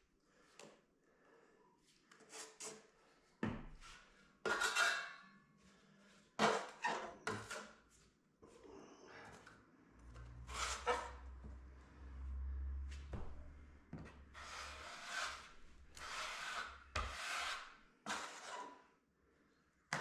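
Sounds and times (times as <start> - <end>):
filling knife rasping on plasterboard: 4.4 - 5.0, 14.4 - 18.8.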